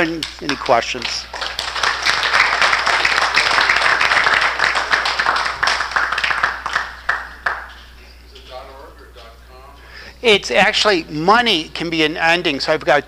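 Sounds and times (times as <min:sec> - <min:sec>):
audience applauding: 0:00.5 - 0:08.0.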